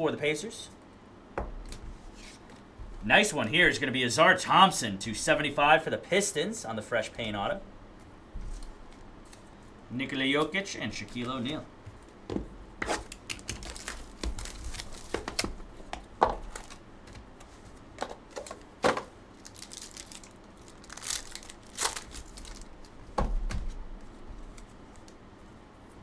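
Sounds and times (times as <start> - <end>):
wrappers crinkling and tearing: 12.9 - 15.5, 16.4 - 17.7, 19.3 - 23.0.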